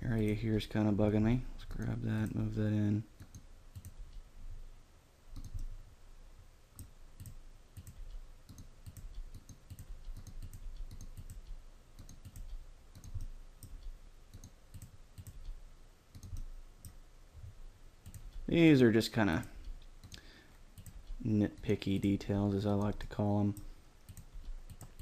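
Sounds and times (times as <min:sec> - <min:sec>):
computer mouse clicks: 0:03.2 - 0:04.2, 0:05.3 - 0:05.8, 0:06.8 - 0:17.0, 0:18.0 - 0:18.5, 0:20.8 - 0:21.7, 0:22.9 - 0:25.0.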